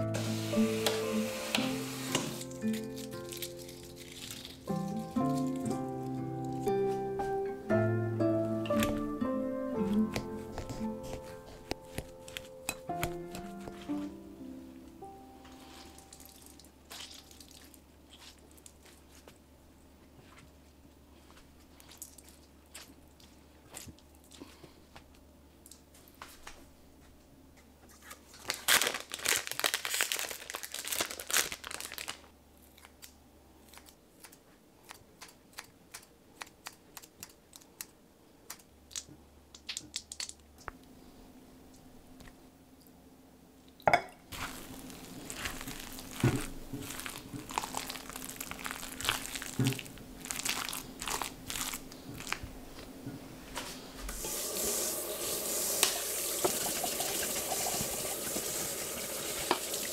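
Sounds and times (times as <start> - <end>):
kitchen tap running: 0.1 - 2.4, 54.2 - 59.9
plastic packet crinkling: 2.1 - 6.7, 28.0 - 33.0, 44.3 - 52.5
handling noises in glass bowl: 2.1 - 7.0, 15.4 - 19.0, 44.3 - 52.4.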